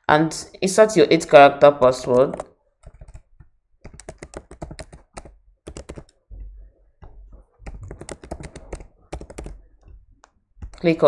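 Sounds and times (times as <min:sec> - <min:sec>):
keyboard typing clicks: 0:01.8 - 0:06.3, 0:07.0 - 0:10.9.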